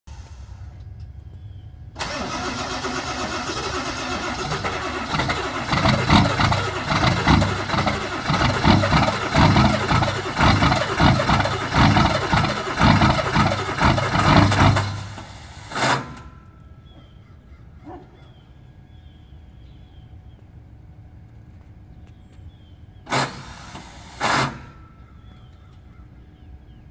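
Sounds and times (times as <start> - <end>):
diesel engine cranking and stumbling: 0.1 - 16.7, 23.1 - 25.7.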